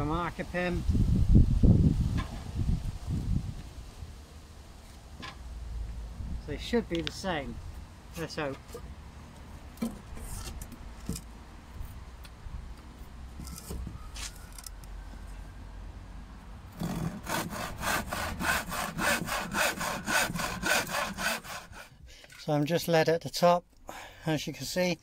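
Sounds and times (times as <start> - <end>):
hand saw cutting timber: 16.7 - 22.0.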